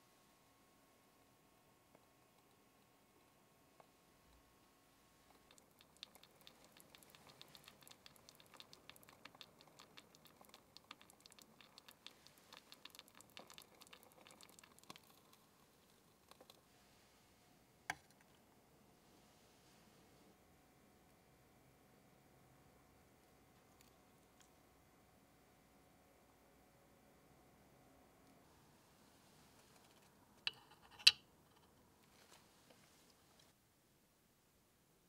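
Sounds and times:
liquid bubbling in a saucepan: 3.9s - 17.1s.

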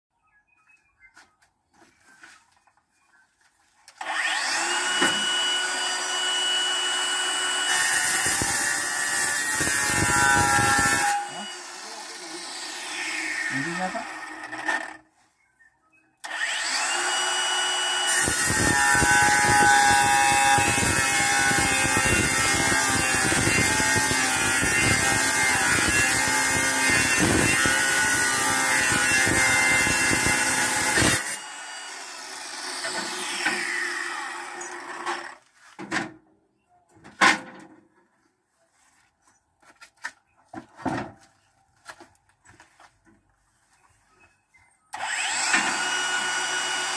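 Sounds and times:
angle grinder cutting tile: 4.0s - 15.0s, 16.2s - 35.4s, 45.0s - 46.9s.

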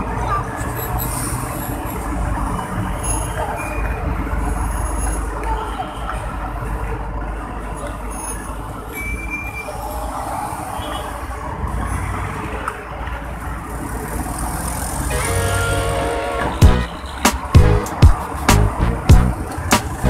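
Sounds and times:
music: 15.9s - 20.0s.

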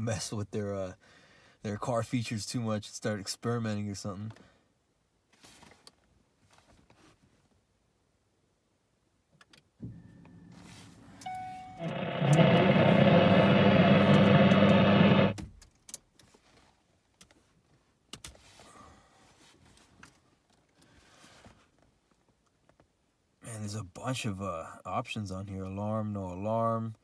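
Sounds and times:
brief tone: 9.8s - 15.4s
low steady hum: 9.8s - 15.4s
loud steady mechanical sound: 11.2s - 15.4s.

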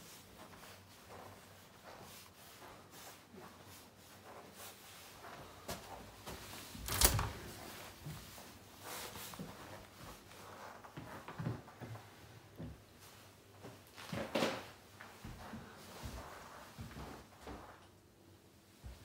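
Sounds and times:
faint footsteps: 0.4s - 17.9s
door pushed open: 6.8s - 7.6s.

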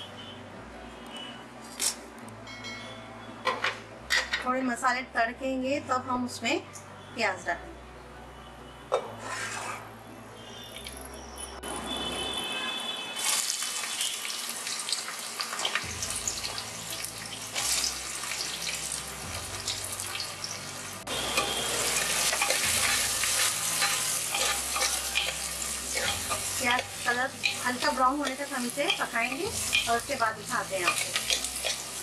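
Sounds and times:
onions frying in oil: 13.2s - 32.0s
spices sizzling in hot oil: 13.2s - 32.0s.

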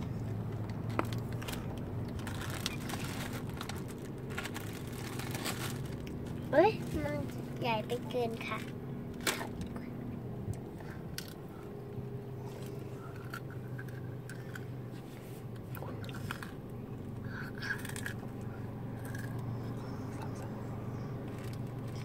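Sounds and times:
low car cabin hum: 0.0s - 22.0s
child chewing crunchy food: 0.2s - 6.4s, 10.8s - 22.0s
plastic bag crinkling: 1.0s - 6.9s.

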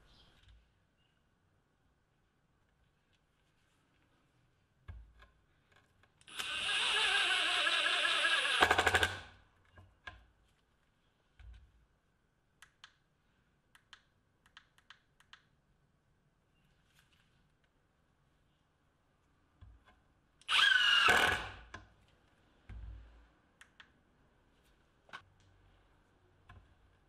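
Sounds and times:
impact driver driving screw into wood: 6.3s - 9.3s, 20.5s - 21.7s.

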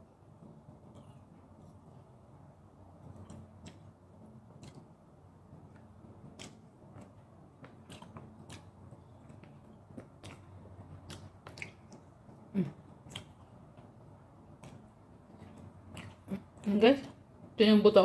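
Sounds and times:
person chewing meat: 3.0s - 5.0s, 5.6s - 17.2s
wet mouth clicks and smacks: 3.1s - 4.9s, 5.7s - 13.8s, 14.5s - 17.2s.

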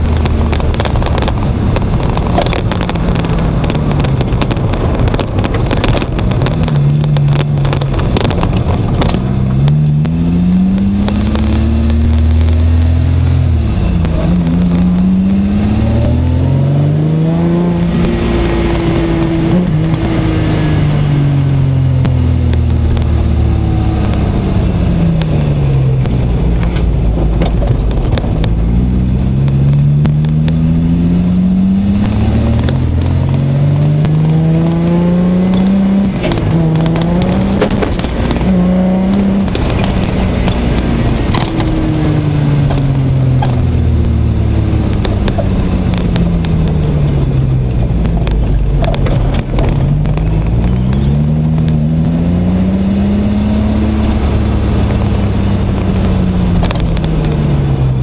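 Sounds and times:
car engine accelerating: 0.0s - 58.0s
clicks and rattles: 47.7s - 51.1s.

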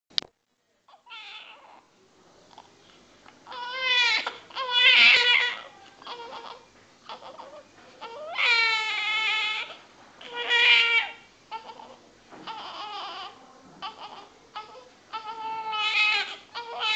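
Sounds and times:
baby crying: 0.9s - 1.8s, 3.5s - 16.9s
baby whimpering: 3.5s - 16.9s.

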